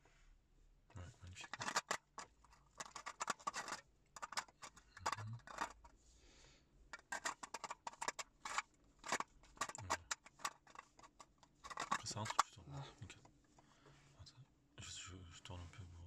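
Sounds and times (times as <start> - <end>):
hard plastic clicking: 1.4 - 5.9, 7.0 - 12.5
plastic scraping rub: 1.4 - 6.0, 6.9 - 12.4.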